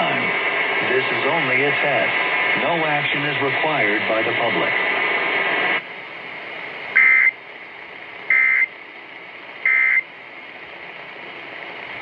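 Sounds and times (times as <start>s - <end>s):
radio hiss: 0.0s - 12.0s
two-tone data squawks from radio: 7.0s - 7.4s, 8.3s - 8.7s, 9.7s - 10.1s.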